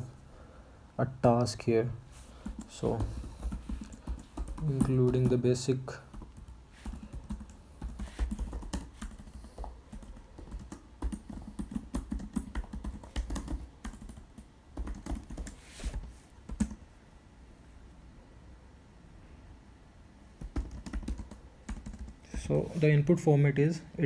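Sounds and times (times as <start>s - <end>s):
computer keyboard typing: 2.4s - 16.8s, 20.4s - 22.4s.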